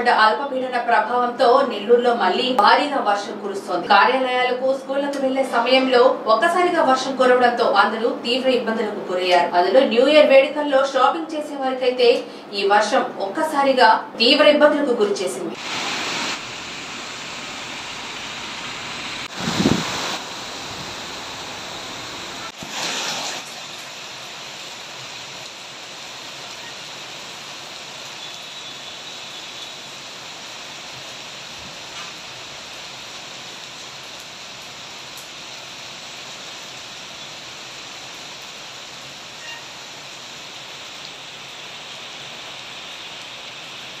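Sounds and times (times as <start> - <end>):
heavy rain falling: 15.6 - 44.0.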